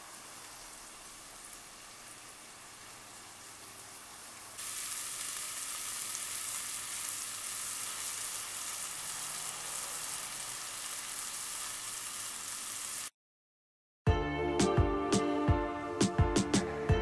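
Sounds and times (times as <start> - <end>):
onions sizzling in oil: 0.0 - 13.2.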